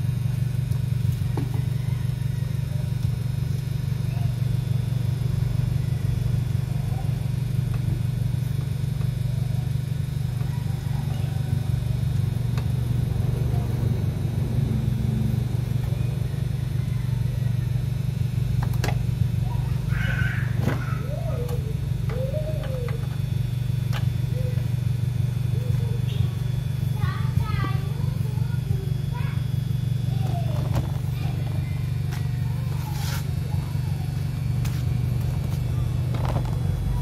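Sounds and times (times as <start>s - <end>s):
motor humming: 0.0s - 37.0s.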